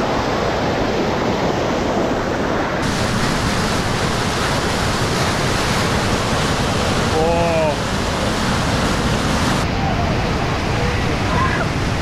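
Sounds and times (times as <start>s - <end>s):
water rushing down a sand channel: 0.0s - 12.0s.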